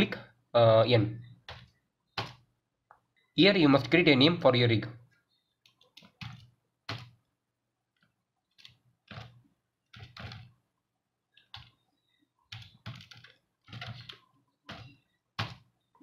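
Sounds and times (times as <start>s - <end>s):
keyboard keystrokes: 11.4s - 11.8s, 12.5s - 15.6s.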